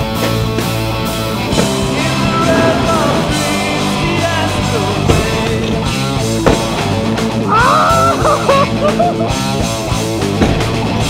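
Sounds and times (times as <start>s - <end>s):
rock music with guitar: 0.0s - 11.0s
person singing: 1.6s - 5.9s.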